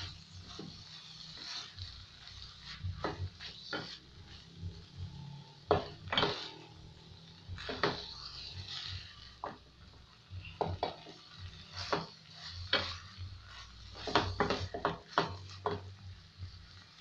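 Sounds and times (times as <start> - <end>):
spoon knocking and scraping pot: 13.9 - 16.0.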